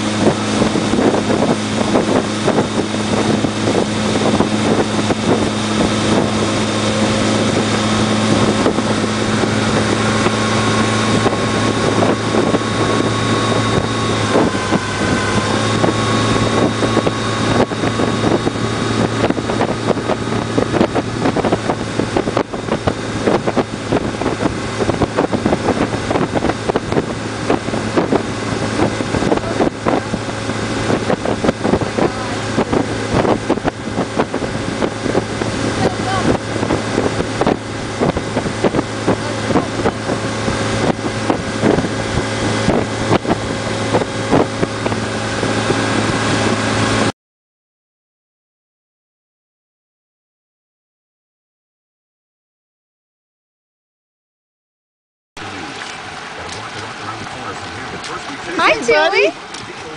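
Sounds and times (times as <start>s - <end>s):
motorboat engine running: 0.0s - 47.1s, 55.4s - 59.9s
wind buffeting microphone: 0.0s - 47.1s.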